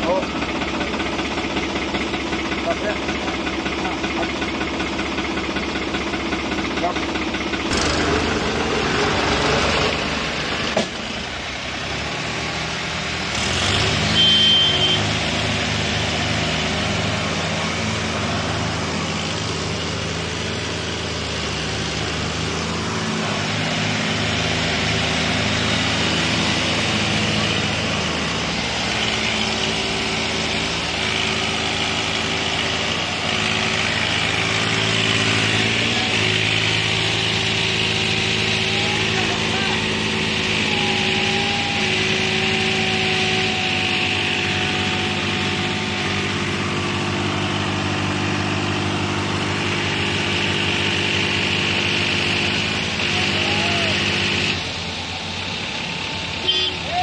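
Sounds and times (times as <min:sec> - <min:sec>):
tractor diesel engines straining: 0:00.0 - 0:57.0.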